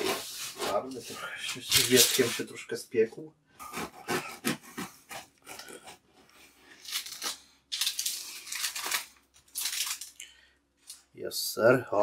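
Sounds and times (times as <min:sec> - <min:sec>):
knife sawing through bread crust: 0:03.6 - 0:06.0.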